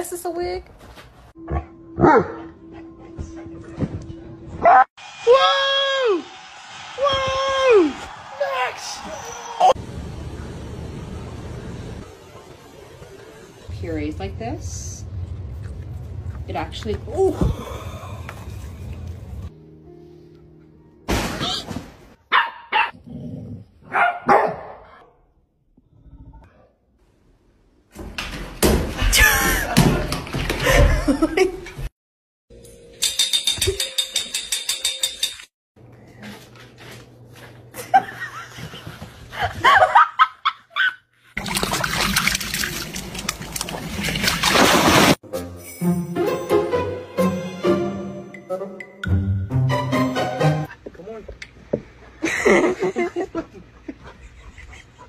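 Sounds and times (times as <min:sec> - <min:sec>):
dog barking: 0:02.0 - 0:02.5, 0:04.6 - 0:04.9, 0:22.3 - 0:23.0, 0:23.9 - 0:25.1
dog splashing through water: 0:41.4 - 0:45.2
people laughing: 0:52.2 - 0:55.0.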